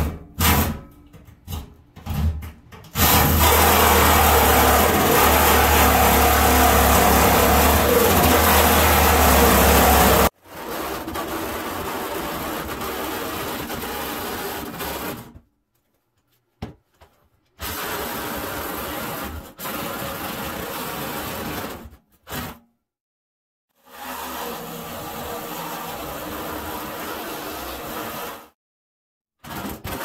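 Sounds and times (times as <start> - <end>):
reciprocating saw cutting metal: 3.0 - 15.2.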